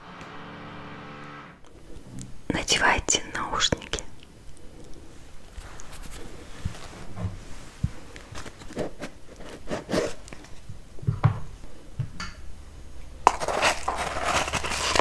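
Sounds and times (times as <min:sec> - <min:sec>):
packet wrapping crinkling: 0:13.3 - 0:15.0.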